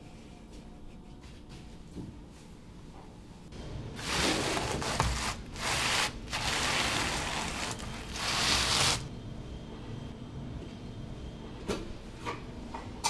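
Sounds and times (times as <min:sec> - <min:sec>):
gloved hands rubbing a sheet: 0:04.0 - 0:09.1.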